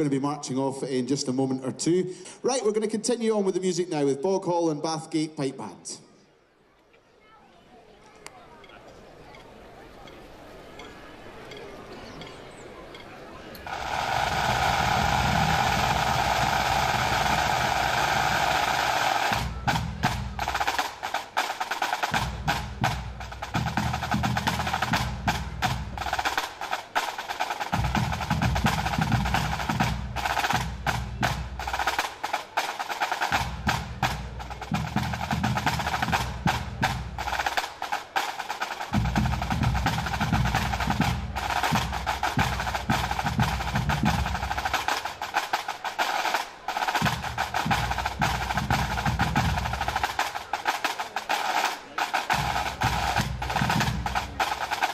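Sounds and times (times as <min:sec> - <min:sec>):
bass and tenor drums: 0:12.6 - 0:54.9
bagpipes with drones: 0:13.5 - 0:20.6
snare drum rolls: 0:13.6 - 0:54.9.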